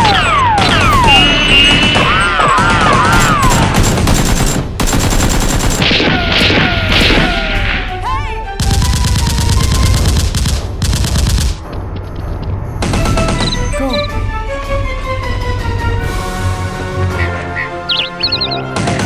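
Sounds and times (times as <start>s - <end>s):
automatic gunfire bursts: 0.0s - 6.5s
background music: 5.9s - 19.0s.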